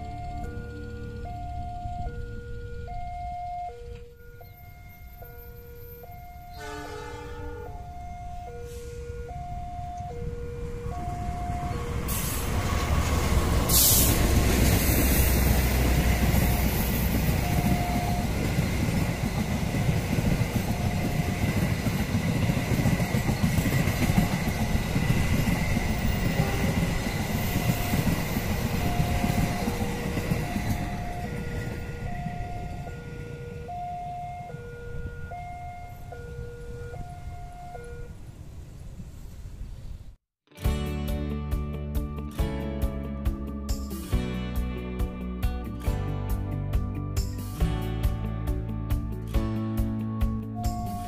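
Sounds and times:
two-tone electronic warning signal: 0:00.0 - 0:38.2, 0:50.6 - 0:51.0
diesel locomotive engine rumble: 0:00.0 - 0:39.7, 0:41.3 - 0:51.0
wheels whining on rails: 0:00.0 - 0:40.1, 0:50.6 - 0:51.0.

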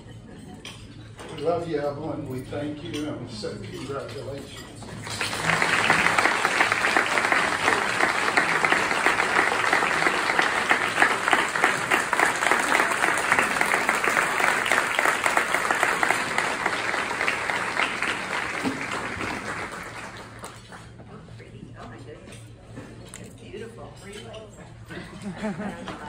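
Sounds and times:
crowd applauding: 0:05.0 - 0:21.0.

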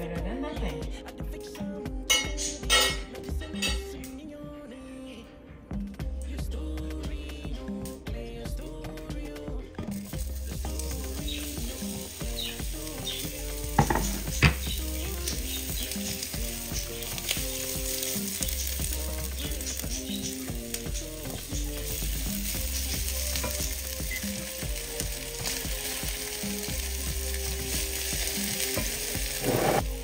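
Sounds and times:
food sizzling in a pan: 0:09.9 - 0:30.0.

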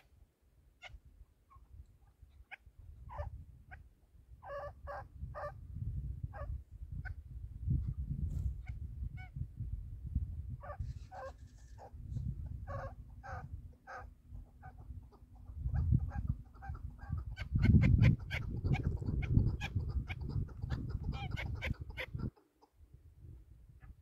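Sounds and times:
wind rumble on microphone: 0:00.8 - 0:24.0
partridge clucking call: 0:13.9 - 0:22.7.

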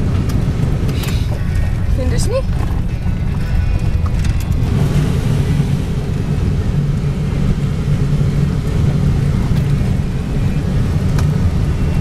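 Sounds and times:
car rumbling on dirt road: 0:00.0 - 0:12.0.

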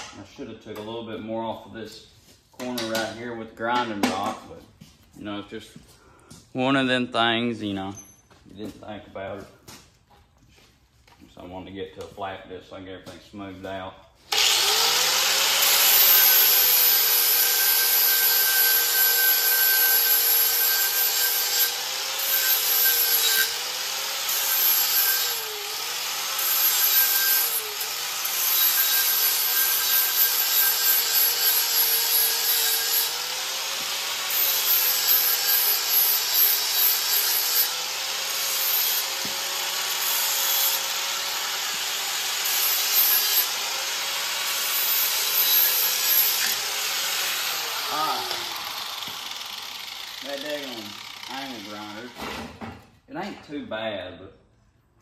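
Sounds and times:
angle grinder grinding steel: 0:14.3 - 0:52.3.

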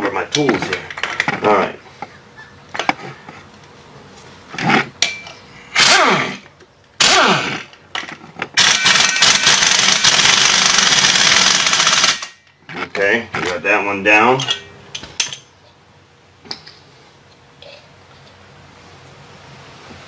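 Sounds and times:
pneumatic wrench whirring: 0:05.7 - 0:07.8, 0:08.6 - 0:12.4.

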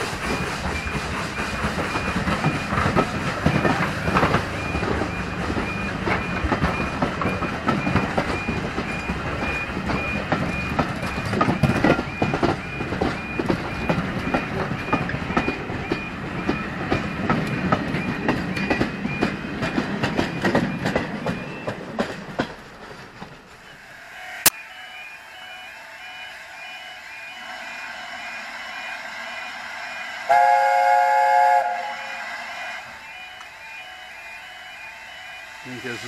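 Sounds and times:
steam locomotive chime whistle: 0:00.0 - 0:17.3, 0:23.6 - 0:36.0
train wheels clicking over rail joints: 0:00.0 - 0:23.7.

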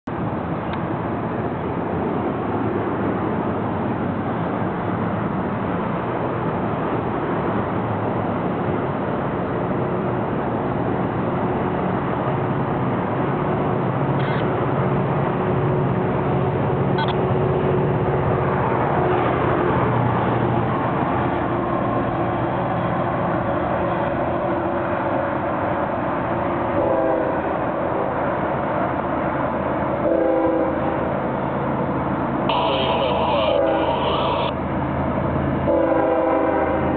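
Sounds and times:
diesel train engine drone: 0:00.1 - 0:36.9
rail noise: 0:00.1 - 0:36.9
locomotive horn blasts: 0:26.8 - 0:27.4, 0:30.0 - 0:30.8, 0:32.5 - 0:34.6, 0:35.7 - 0:36.8.

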